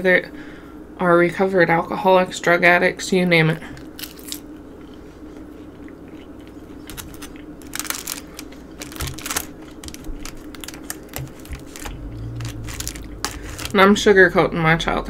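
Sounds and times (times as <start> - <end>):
faint steady hum: 0.0 - 15.0
chewing chicken wings: 3.8 - 13.8.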